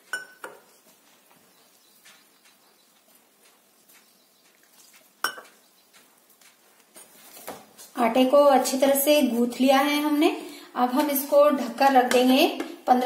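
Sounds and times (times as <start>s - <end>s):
hand mixing dough: 0.0s - 13.0s
steel tumbler clinking on glass bowl: 5.2s - 5.5s.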